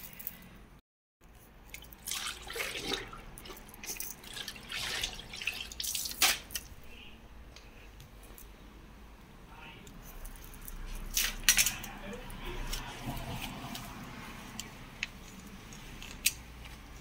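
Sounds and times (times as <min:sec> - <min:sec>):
wet mop in bucket of water: 0:01.4 - 0:06.7.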